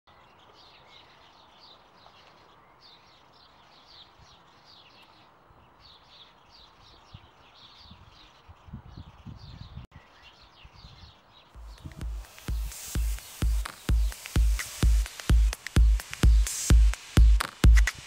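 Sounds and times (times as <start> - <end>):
songbird chirping: 0.1 - 18.0
steady hiss: 11.6 - 18.0.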